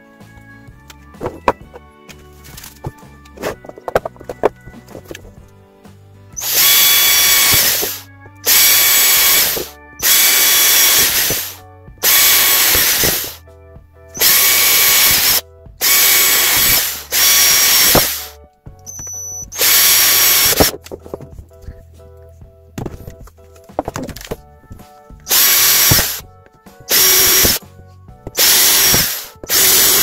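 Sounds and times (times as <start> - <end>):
power drill whining: 6.4 - 13.4, 14.2 - 20.8, 25.3 - 26.2, 26.9 - 27.6, 28.3 - 30.0.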